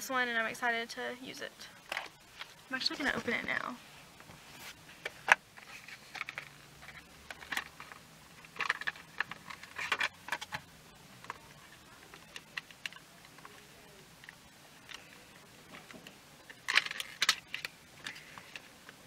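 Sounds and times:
plastic packaging crinkling and clicking: 5.0s - 13.6s, 14.2s - 19.0s.

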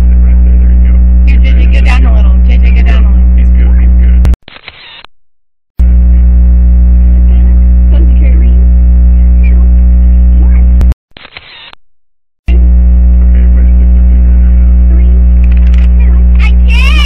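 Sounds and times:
loud electrical mains hum: 0.0s - 4.3s, 5.8s - 10.8s, 12.5s - 17.0s
faint voices: 0.0s - 4.4s, 6.9s - 10.8s, 12.5s - 17.0s.

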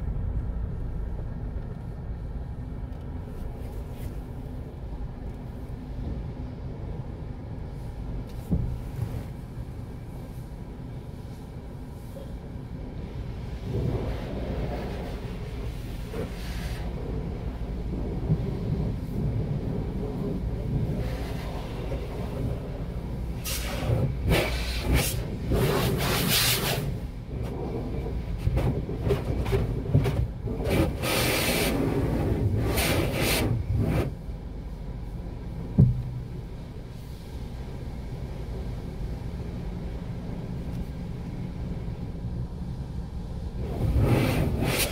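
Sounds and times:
car wash low rumble: 0.0s - 44.9s
short thump: 8.4s - 9.1s, 35.8s - 36.3s
spray hissing on windshield: 14.3s - 17.1s, 23.4s - 27.1s, 30.5s - 34.1s, 43.6s - 44.9s.

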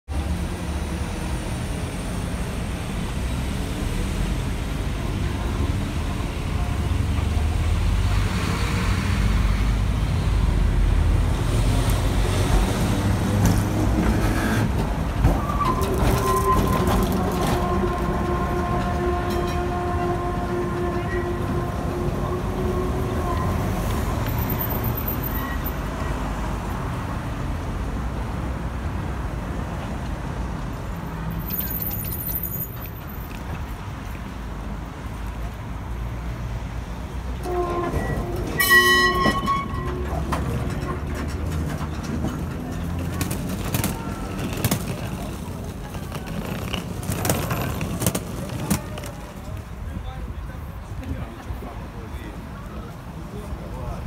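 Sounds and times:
city traffic: 0.1s - 54.0s
tram rumbling on rails: 0.1s - 54.0s
tram clunk: 4.0s - 27.1s, 36.9s - 50.0s
tram wheels squealing: 11.5s - 26.4s, 31.3s - 33.4s, 37.2s - 49.4s.

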